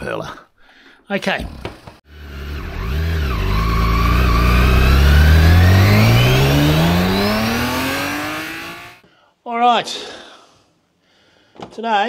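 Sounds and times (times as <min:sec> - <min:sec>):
vehicle engine accelerating: 0:02.1 - 0:09.0.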